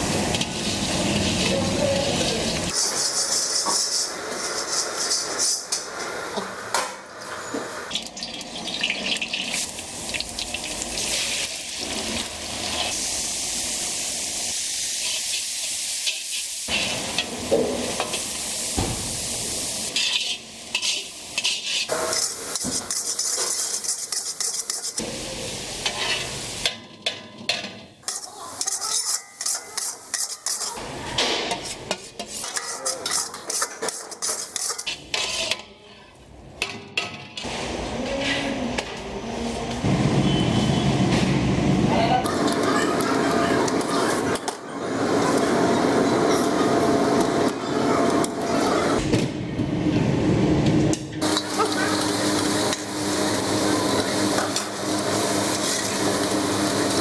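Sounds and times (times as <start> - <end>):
food sizzling in oil: 0.0 - 26.8, 28.0 - 35.2, 51.2 - 57.0
spatula scraping metal pan: 19.9 - 25.0, 25.8 - 26.4, 28.0 - 30.8, 31.5 - 36.1.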